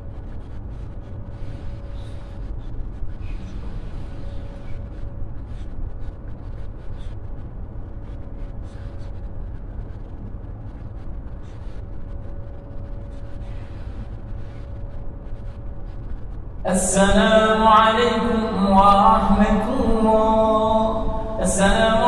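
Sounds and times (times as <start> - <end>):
small rustles and ticks: 0.0 - 16.4
faint steady hum: 0.0 - 22.0
low rumble of a large hall: 0.0 - 22.0.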